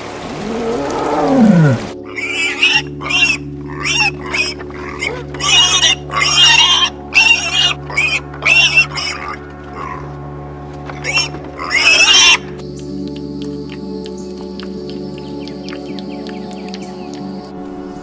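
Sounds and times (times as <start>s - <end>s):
tiger growling: 0.3s - 10.2s
piglets squealing: 2.1s - 10.1s, 11.0s - 12.5s.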